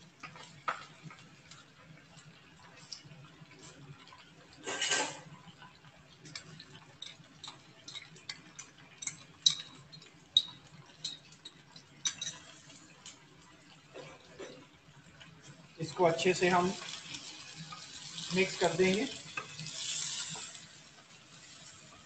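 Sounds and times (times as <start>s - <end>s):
chicken frying in oil: 0.0s - 22.0s.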